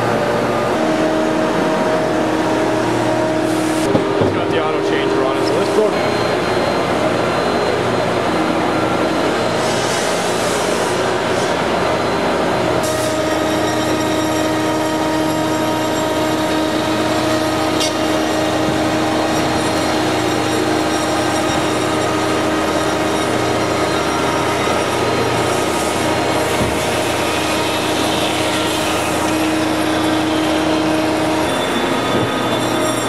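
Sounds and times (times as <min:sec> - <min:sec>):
router spindle cutting plastic: 0:12.8 - 0:33.0.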